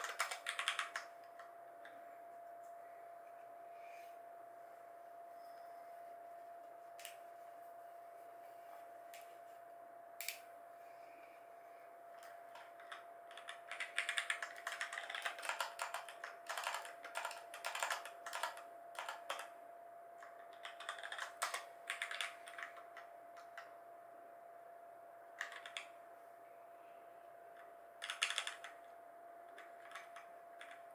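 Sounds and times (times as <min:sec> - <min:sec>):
mechanical keyboard typing: 0:00.0 - 0:02.0, 0:12.2 - 0:19.5, 0:20.2 - 0:23.7, 0:25.4 - 0:25.9, 0:27.6 - 0:28.8, 0:29.5 - 0:30.9.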